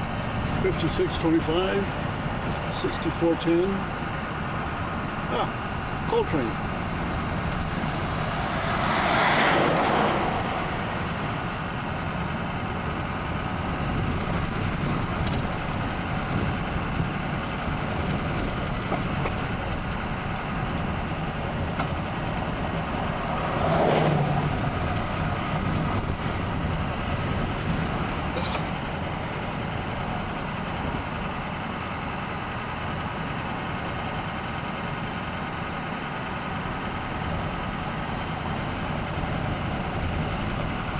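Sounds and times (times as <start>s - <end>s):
rolling rumble of hopper cars: 0.0s - 40.9s.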